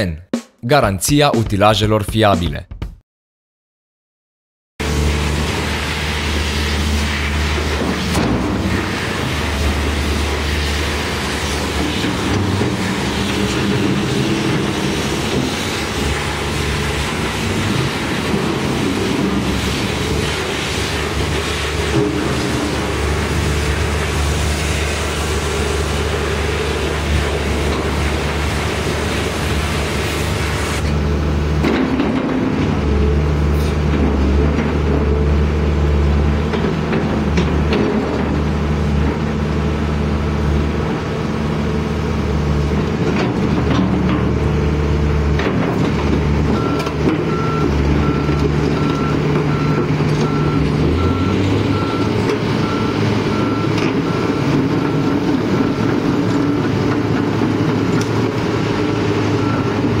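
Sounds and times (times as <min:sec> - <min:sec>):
excavator diesel engine: 0:04.8 - 1:00.0.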